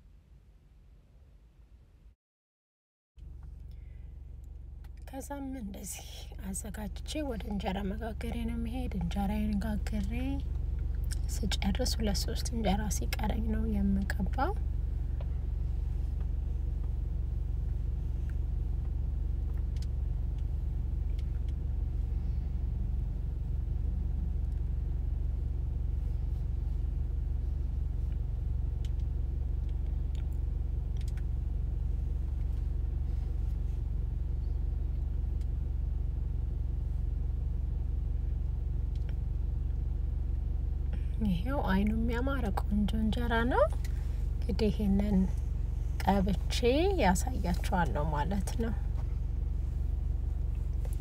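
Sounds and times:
low machine hum: 3.2s - 51.0s
faint clicks: 28.8s - 31.3s.

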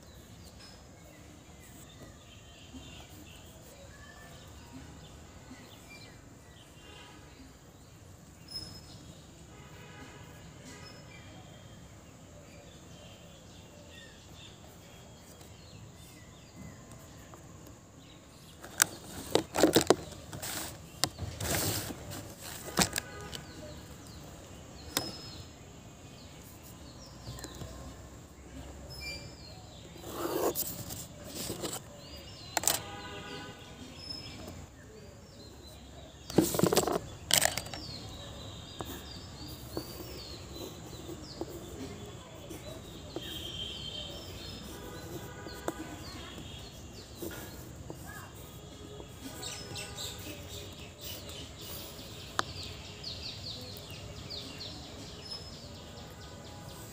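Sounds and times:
steady background noise: 0.0s - 56.9s
paper and pencil handling knocks: 18.5s - 23.6s, 24.9s - 25.3s, 30.0s - 33.0s, 36.2s - 38.0s, 44.6s - 46.6s.

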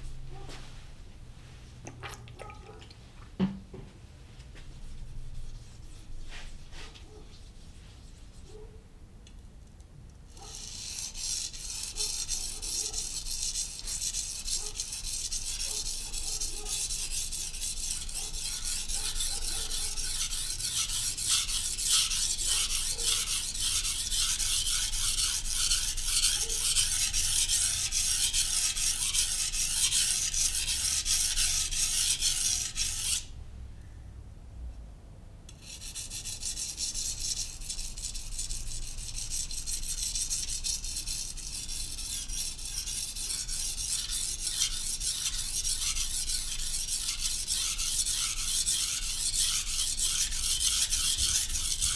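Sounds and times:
knife rubbing on whetstone: 10.3s - 33.3s, 35.5s - 51.9s.

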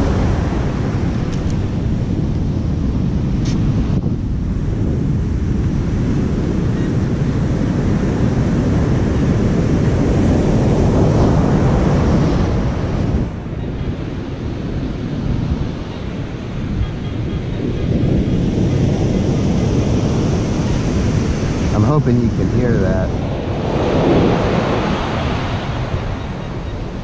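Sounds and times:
heavy surf: 0.0s - 27.0s
wind buffeting microphone: 0.0s - 27.0s.

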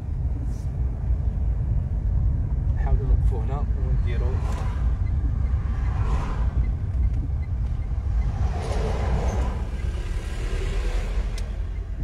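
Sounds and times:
car driving heard from inside: 0.0s - 12.0s
oncoming vehicle passing: 4.0s - 11.8s.

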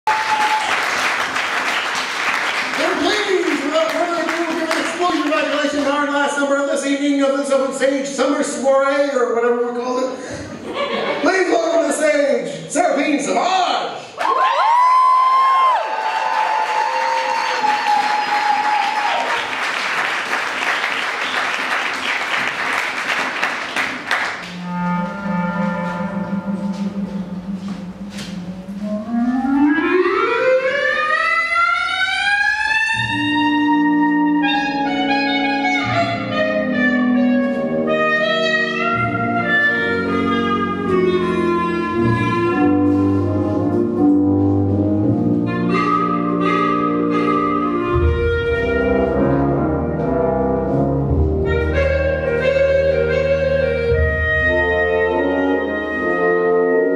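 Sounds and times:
audience applauding and cheering: 0.0s - 6.1s, 14.2s - 24.6s
clarinet rising glide: 24.4s - 50.2s, 51.4s - 56.9s
band with brass: 32.9s - 56.9s.

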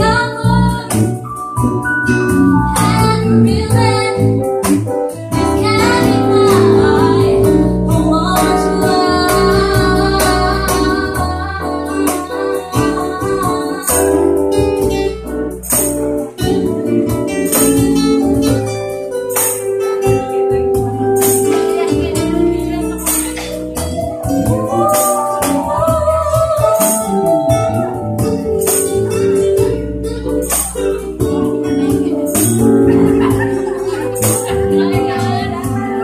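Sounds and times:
woman singing: 0.0s - 1.2s, 2.7s - 4.4s, 5.4s - 14.6s, 21.5s - 27.7s, 31.8s - 36.0s
acoustic guitar: 0.0s - 36.0s
electric bass: 0.0s - 36.0s
keyboard: 0.0s - 36.0s.

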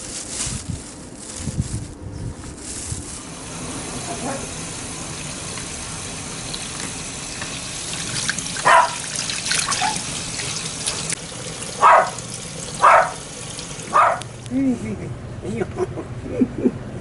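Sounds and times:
hands splashing rinsing onions: 3.2s - 14.4s
tap running into steel bowl: 6.5s - 12.8s.

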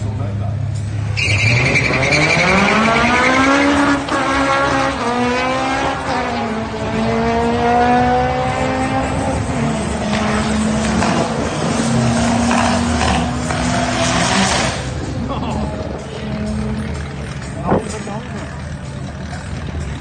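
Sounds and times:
drag car engines revving: 0.0s - 20.0s
tyre squeal: 1.1s - 3.6s.

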